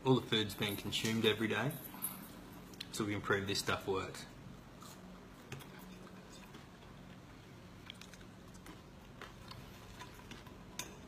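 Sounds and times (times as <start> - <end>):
person chewing food: 4.7 - 11.0.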